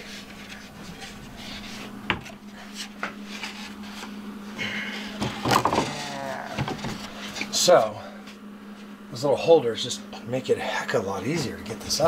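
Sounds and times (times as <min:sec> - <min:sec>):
plywood scraping and rubbing: 0:00.0 - 0:04.2
steady low hum: 0:00.0 - 0:12.0.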